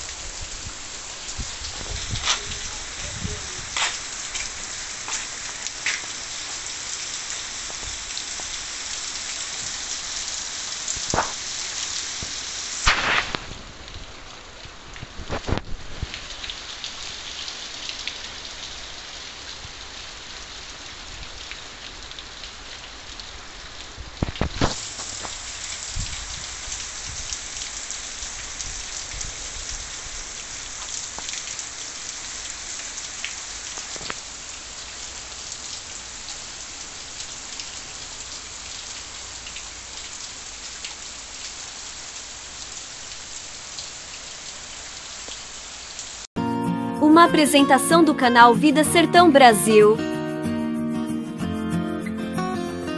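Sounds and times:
steady rain falling: 0.0 - 46.3.

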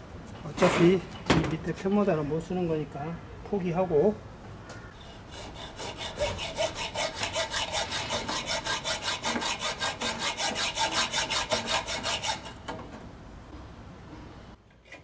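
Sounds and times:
hacksaw sawing metal: 5.0 - 12.8.

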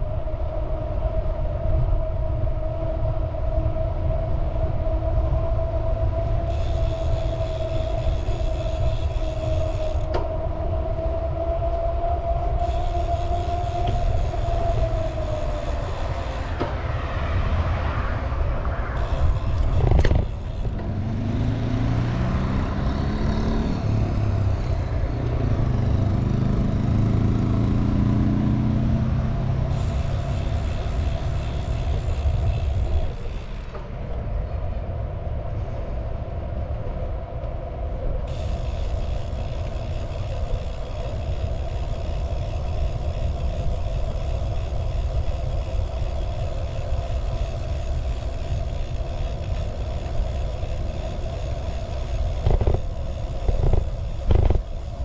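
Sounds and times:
vehicle motor running: 12.6 - 34.0, 38.3 - 55.0.

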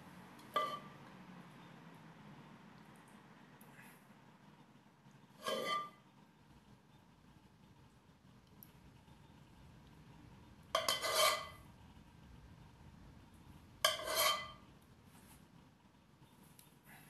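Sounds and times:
metal spoon scraping ceramic dish: 0.5 - 0.9, 5.4 - 6.0, 10.8 - 11.6, 13.8 - 14.6.

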